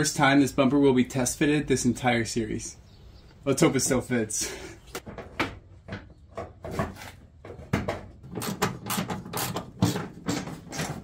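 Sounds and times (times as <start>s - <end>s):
plastic bumper knocking and clicking: 5.0s - 11.0s.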